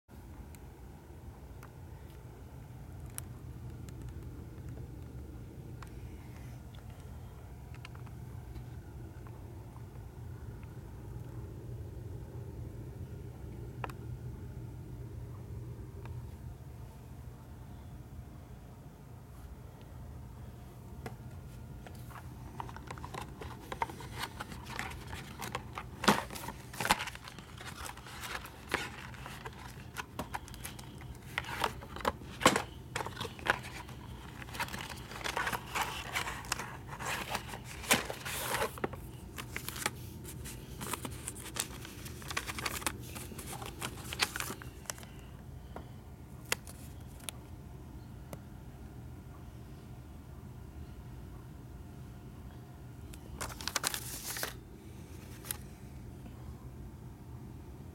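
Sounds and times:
steady low hum: 0.1s - 57.9s
plastic packaging crinkling: 21.9s - 45.3s, 53.4s - 54.6s.

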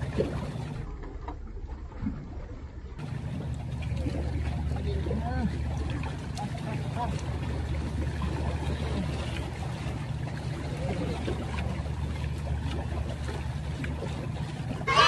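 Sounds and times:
boat engine drone: 0.0s - 15.0s.

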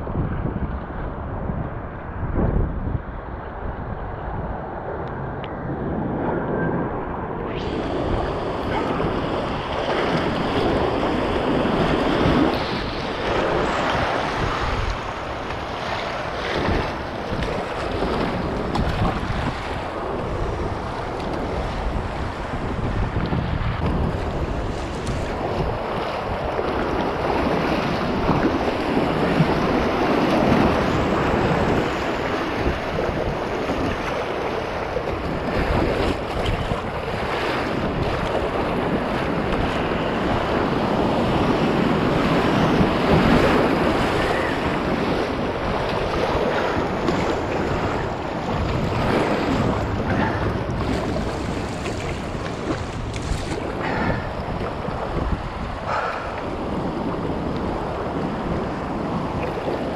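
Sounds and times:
wind noise on microphone: 0.0s - 59.9s
whitewater rushing and splashing: 7.5s - 59.9s.

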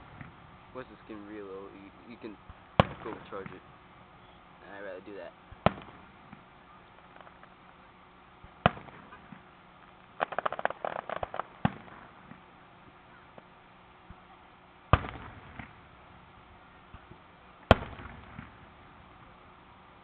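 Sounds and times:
crackling pops: 2.2s - 3.7s, 5.5s - 14.3s, 14.9s - 15.8s, 16.8s - 18.9s
firework shells bursting: 5.5s - 7.8s, 8.4s - 12.5s.

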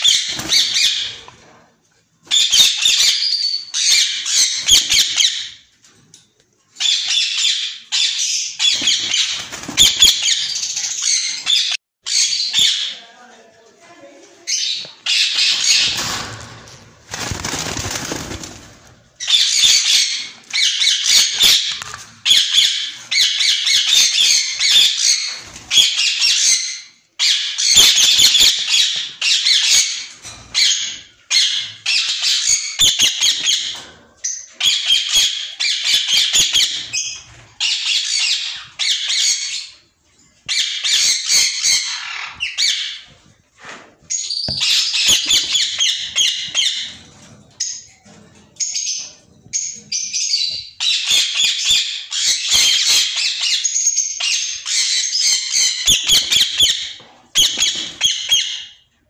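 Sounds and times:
parakeets squawking: 6.8s - 13.0s, 40.5s - 43.0s, 44.5s - 46.9s.

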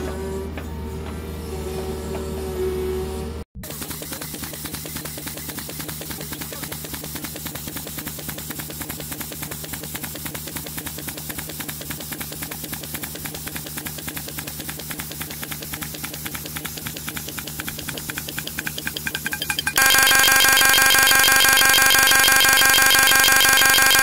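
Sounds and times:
pneumatic mole hammering: 3.6s - 24.0s.

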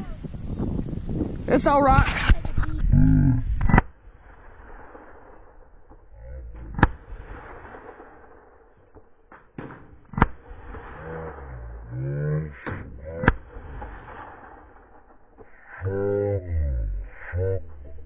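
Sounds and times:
gunshots: 3.7s - 15.8s.

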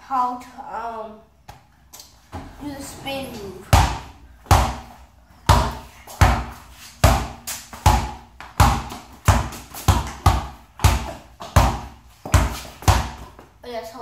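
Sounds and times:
basketball bouncing on concrete: 3.6s - 13.6s.

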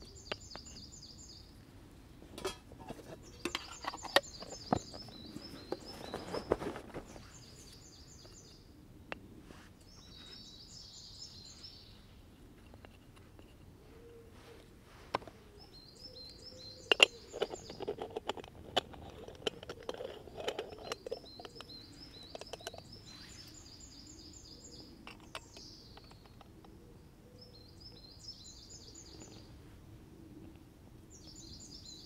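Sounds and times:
metal clicks and scraping: 2.3s - 6.4s, 16.8s - 23.0s, 25.0s - 26.5s.

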